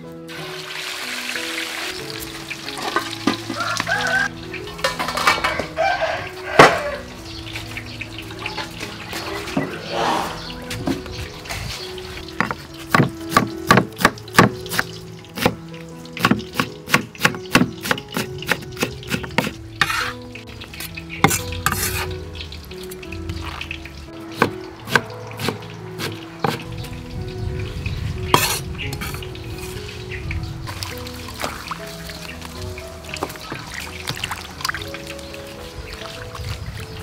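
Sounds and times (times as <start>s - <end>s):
soft background music: 0.0s - 37.0s
knife chopping on wooden board: 24.4s - 26.6s.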